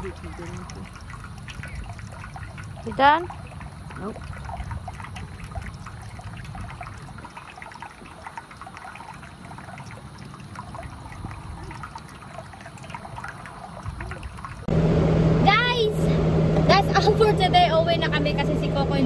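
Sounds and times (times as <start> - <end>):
dog lapping water: 0.0 - 14.7
water trickling into bowl: 0.0 - 14.7.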